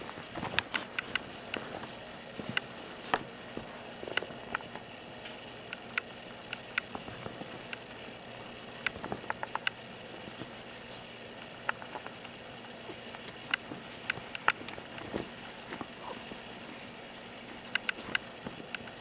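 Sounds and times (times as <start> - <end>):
faint steady hum: 0.0 - 19.0.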